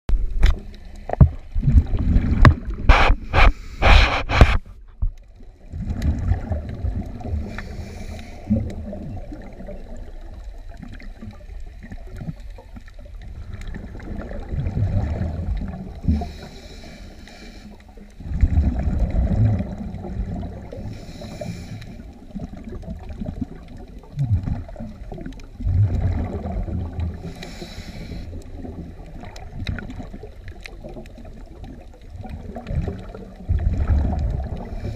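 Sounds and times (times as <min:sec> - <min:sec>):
rushing and bubbling water: 0:00.1 - 0:34.9
diver breathing underwater: 0:01.9 - 0:04.7, 0:06.1 - 0:09.0, 0:13.9 - 0:22.3, 0:25.9 - 0:28.8, 0:34.2 - 0:34.9.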